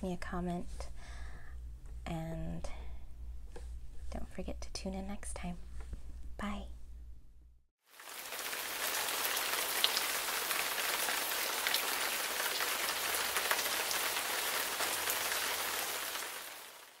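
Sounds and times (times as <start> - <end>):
steady rain hiss: 7.8 - 17.0
rain drops ticking: 7.9 - 17.0.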